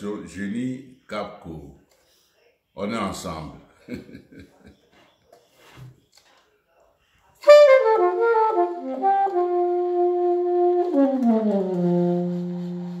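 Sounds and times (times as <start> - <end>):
solo saxophone: 7.4 - 13.0.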